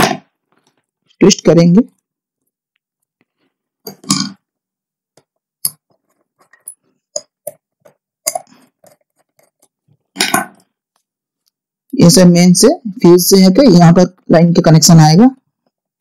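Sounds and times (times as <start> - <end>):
hands twisting copper wire: 5.1 - 11.7.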